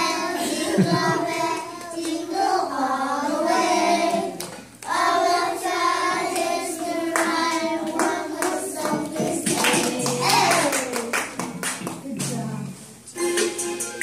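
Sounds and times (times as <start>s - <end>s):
children singing: 0.0s - 11.0s.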